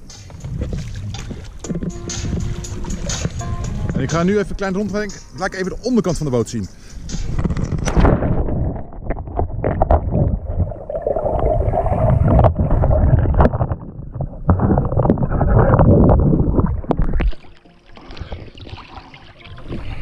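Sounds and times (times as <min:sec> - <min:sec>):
sharp underwater clicks and knocks: 0:00.0 - 0:05.3, 0:07.0 - 0:10.7, 0:12.3 - 0:17.6
muffled underwater water rush: 0:07.2 - 0:20.0.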